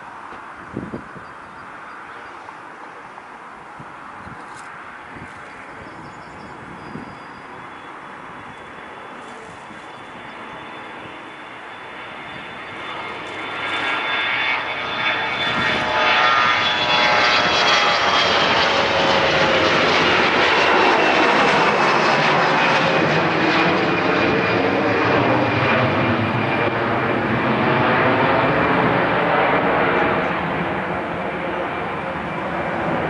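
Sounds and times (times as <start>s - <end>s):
jet engines at takeoff thrust: 0.0s - 33.0s.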